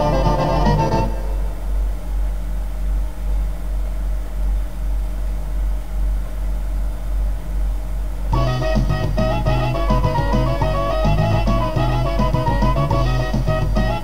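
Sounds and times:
faint tape hiss: 0.0s - 14.0s
low pulsing hum: 0.0s - 14.0s.

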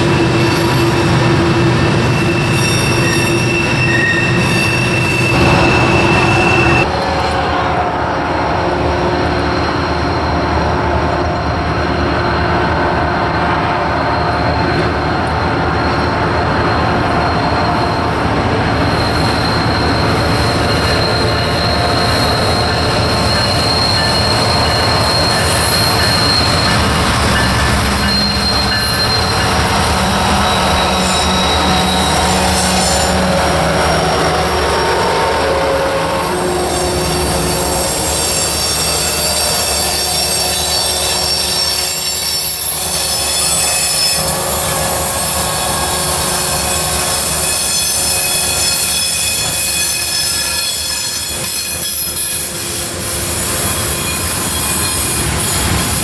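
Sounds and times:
diesel locomotive engine: 0.0s - 56.0s
train wheels squealing: 0.0s - 56.0s
freight cars rumbling: 4.9s - 40.8s.

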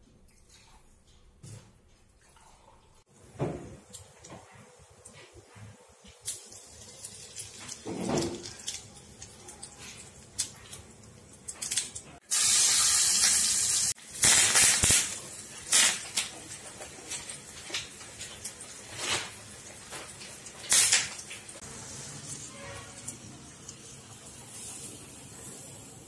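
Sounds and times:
hot oil crackling and popping: 6.0s - 26.0s
loud sizzling hiss: 12.2s - 16.3s.

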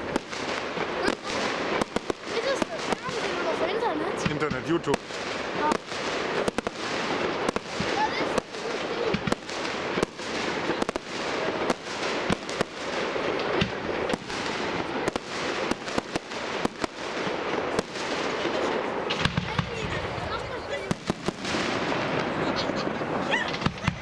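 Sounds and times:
firework shells bursting: 20.8s - 24.0s.

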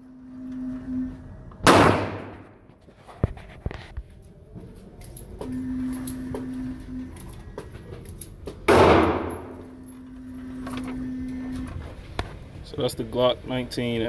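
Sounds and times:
steady low hum: 0.0s - 14.0s
gunshot bang with echo: 1.6s - 2.4s, 8.7s - 9.5s.

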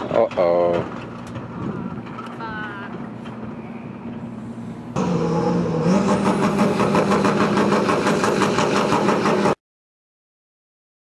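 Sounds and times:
drag car engine revving: 5.0s - 9.6s.

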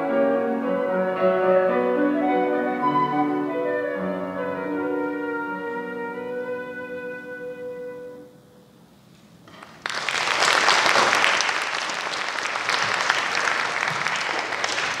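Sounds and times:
audience applause: 9.5s - 15.0s.

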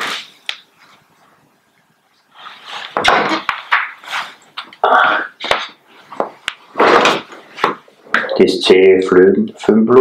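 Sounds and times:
rustling and handling noise: 0.0s - 4.8s.

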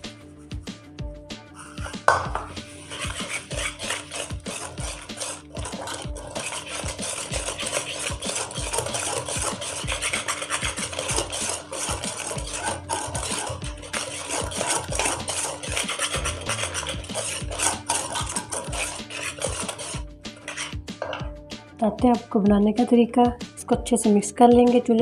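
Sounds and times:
whisk scraping metal pot: 1.6s - 21.2s.

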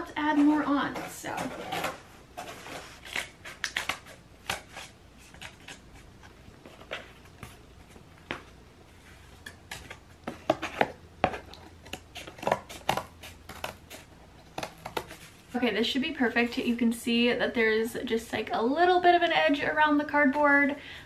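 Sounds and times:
scissors cutting cardboard: 0.2s - 6.4s, 9.5s - 15.3s.

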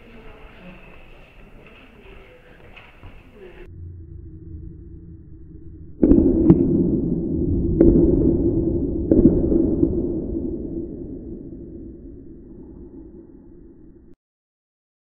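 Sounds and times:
loud bang with rumbling tail: 3.7s - 14.2s.

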